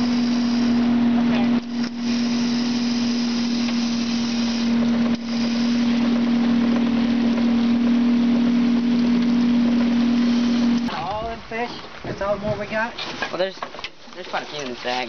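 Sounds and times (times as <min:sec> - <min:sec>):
boat motor running: 0:00.0 - 0:11.1.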